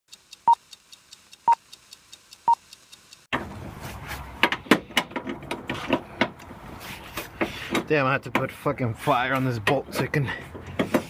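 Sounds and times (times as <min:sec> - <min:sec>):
faint fast ticking: 0:00.1 - 0:03.3
metal clanks and knocks: 0:04.4 - 0:06.4.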